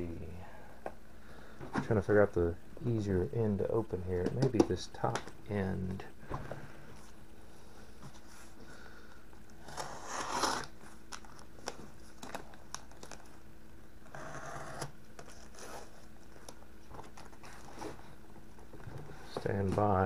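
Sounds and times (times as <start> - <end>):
packing tape crinkling and scraping: 9.6 - 13.4, 14.1 - 18.2.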